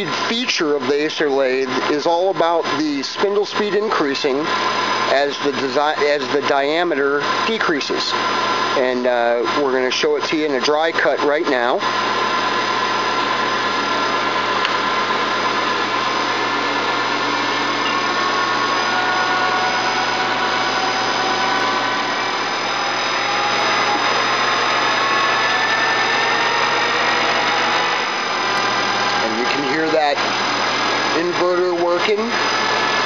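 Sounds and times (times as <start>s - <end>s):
lathe cutting steel: 11.6s - 33.0s.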